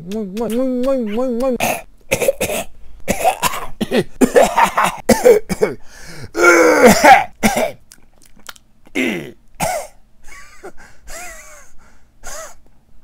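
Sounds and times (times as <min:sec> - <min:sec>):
man coughing: 0:01.6 - 0:05.8, 0:06.4 - 0:07.8, 0:08.9 - 0:12.6.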